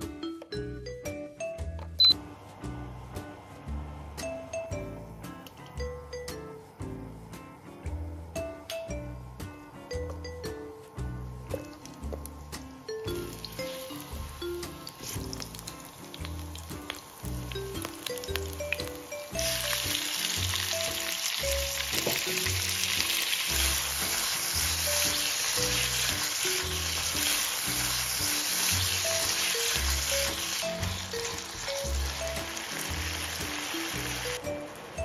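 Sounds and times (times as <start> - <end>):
meat sizzling in hot oil: 11.6 - 34.4.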